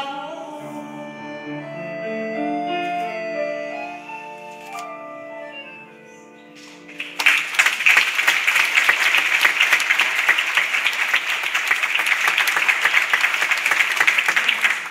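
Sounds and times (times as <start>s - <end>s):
grand piano chord: 0.0s - 7.1s
audience applause: 6.6s - 14.9s.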